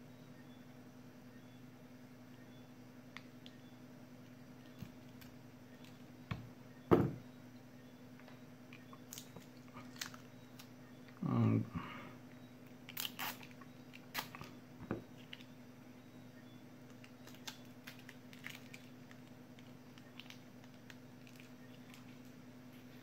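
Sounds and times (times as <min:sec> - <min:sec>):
steady low hum: 0:00.0 - 0:23.0
clicks and plastic crinkling: 0:08.2 - 0:10.7, 0:16.9 - 0:22.3.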